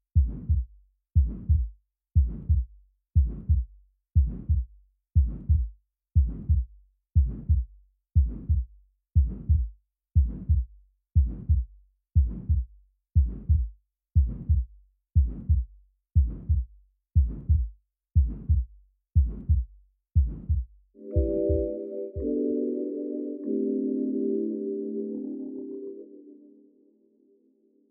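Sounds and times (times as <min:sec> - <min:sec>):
heartbeat thuds: 0:00.2 - 0:22.3.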